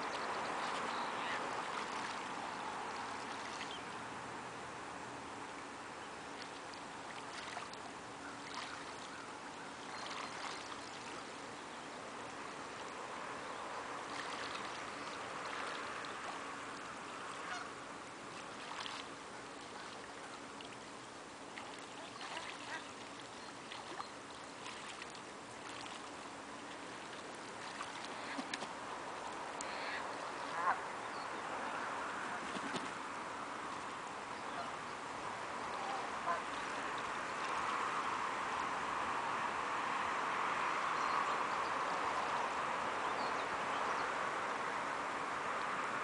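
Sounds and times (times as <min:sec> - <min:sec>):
water noise: 0:00.0 - 0:46.0
geese honking: 0:17.4 - 0:17.8, 0:29.6 - 0:30.9, 0:35.7 - 0:36.6.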